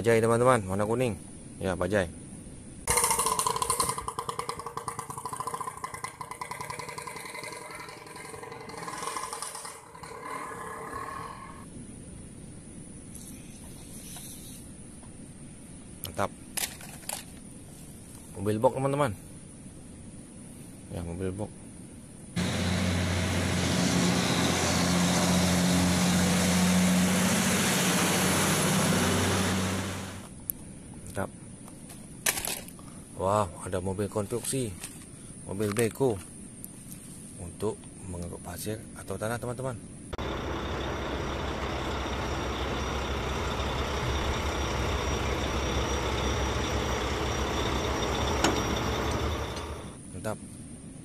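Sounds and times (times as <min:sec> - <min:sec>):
truck diesel engine drone: 0:22.4 - 0:30.3, 0:40.2 - 0:50.0
tyres hissing on wet road: 0:22.4 - 0:30.3, 0:40.2 - 0:50.0
thin high whine: 0:40.2 - 0:50.0.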